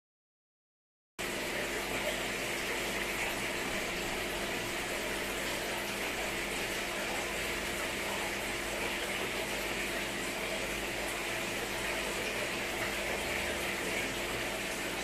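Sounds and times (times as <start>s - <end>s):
aquarium filter water rushing: 1.2s - 15.0s.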